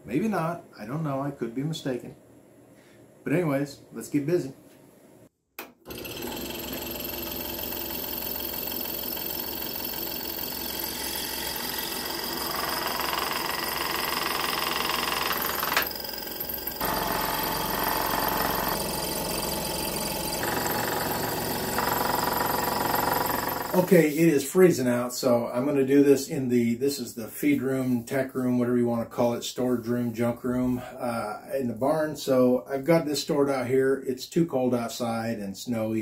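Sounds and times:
scroll saw buzzing: 5.9 - 24.2.

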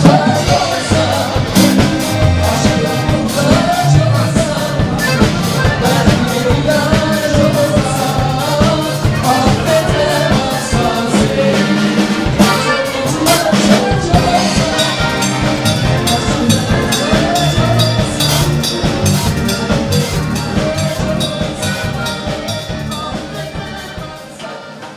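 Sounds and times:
accordion: 0.0 - 24.9
steady beat: 0.0 - 24.9
strummed acoustic guitars: 0.0 - 24.9
woman singing: 12.4 - 18.3.

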